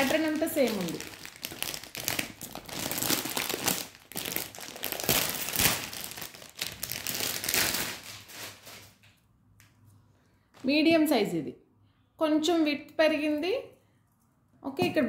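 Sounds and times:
plastic packaging crinkling: 0.0 - 9.2.

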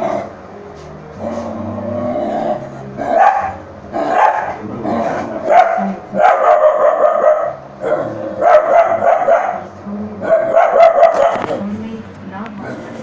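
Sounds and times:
dog growling: 1.1 - 6.0, 7.4 - 11.7, 12.6 - 13.0
dog barking angrily: 3.0 - 11.6.

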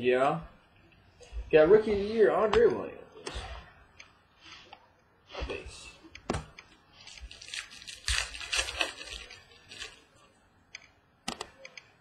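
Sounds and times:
wrapper crinkling: 7.0 - 10.3
sharp clicks: 10.7 - 11.9.

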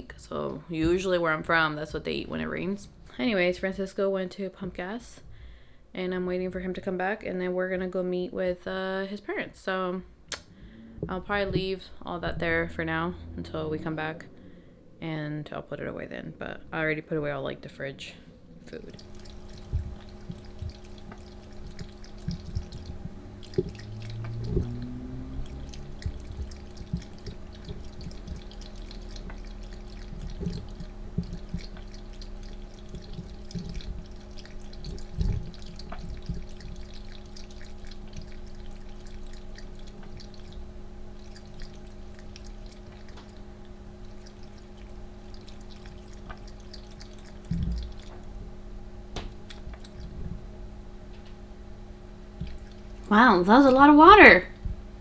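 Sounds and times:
cat lapping water: 18.7 - 48.4, 49.3 - 50.3, 52.3 - 53.8
water fountain trickling: 18.7 - 48.4, 49.4 - 50.2, 52.4 - 54.4
pump humming: 18.7 - 55.0.

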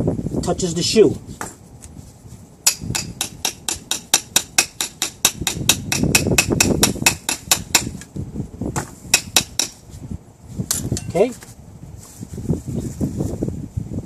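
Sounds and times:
hammer tapping steel pin: 2.7 - 7.9, 9.2 - 9.8.

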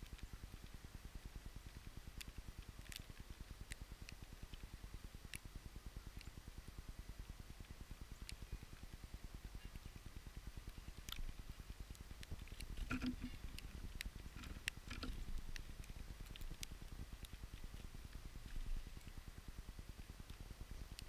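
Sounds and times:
faint clicks and ticks: 0.0 - 21.0
wind rumble on microphone: 6.6 - 21.0.

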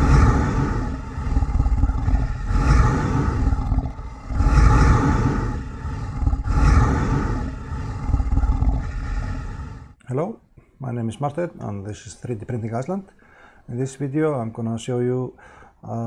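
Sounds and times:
dinosaur roars: 0.0 - 10.0.

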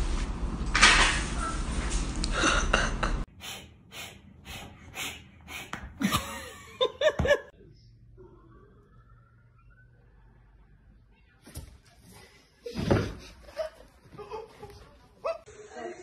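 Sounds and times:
man laughing hard: 6.0 - 7.5.

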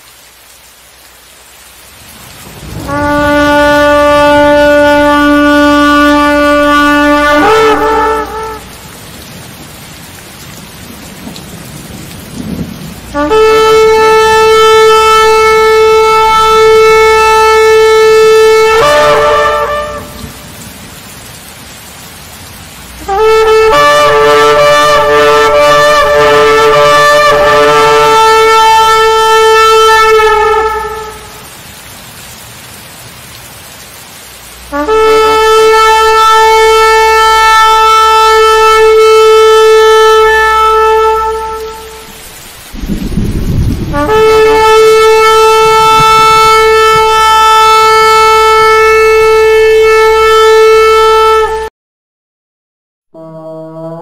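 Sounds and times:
steady rushing noise: 2.0 - 5.2
ram's horn blasts: 2.6 - 8.8, 13.2 - 20.4, 23.0 - 31.5, 34.7 - 42.2, 43.9 - 51.7.

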